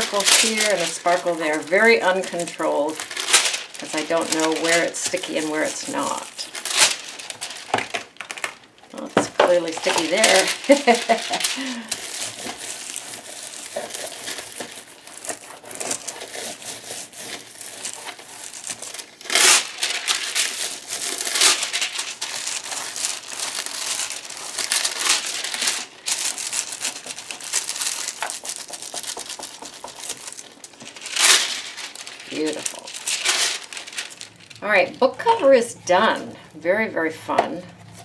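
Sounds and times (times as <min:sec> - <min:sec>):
foil crinkling: 0:00.0 - 0:36.4.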